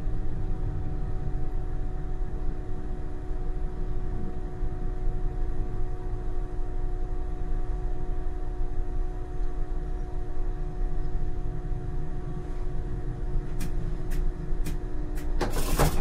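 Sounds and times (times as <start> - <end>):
tram electrical hum: 0.0 - 16.0
rush of tram: 15.2 - 16.0.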